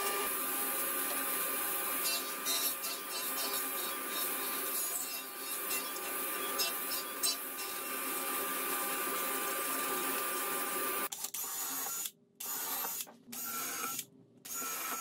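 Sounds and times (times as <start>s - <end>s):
table saw whining: 0.0s - 11.1s.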